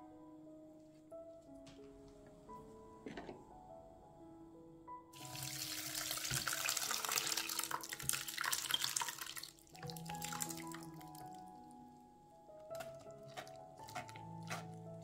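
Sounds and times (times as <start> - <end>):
soft background music: 0.0 - 15.0
liquid running or splashing: 5.2 - 11.0.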